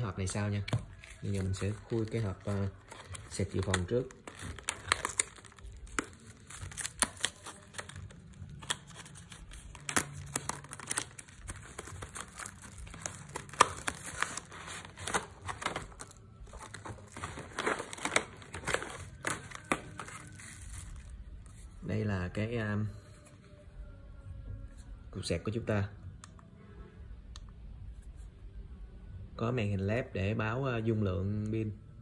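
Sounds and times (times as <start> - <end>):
plastic wrapping crinkling: 0.6 - 21.7
cardboard box being opened: 8.9 - 21.1.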